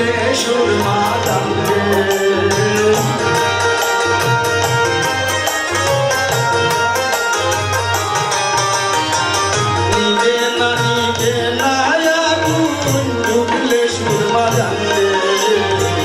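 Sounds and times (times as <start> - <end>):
man singing folk song: 0.0 - 3.4, 10.0 - 16.0
harmonium: 0.0 - 16.0
keyboard: 0.0 - 16.0.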